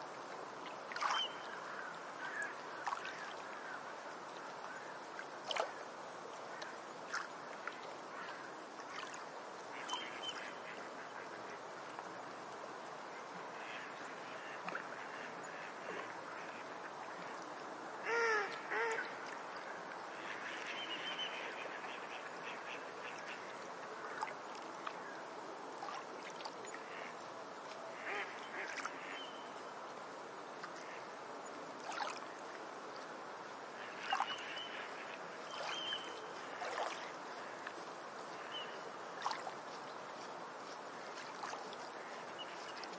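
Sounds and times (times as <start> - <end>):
steady background hiss: 0.0 - 42.9
bird calls and chirps: 35.5 - 36.3.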